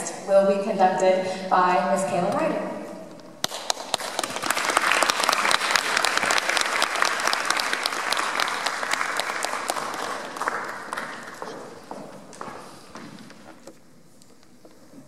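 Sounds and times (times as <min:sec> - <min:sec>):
audience applauding: 0:03.4 - 0:11.8.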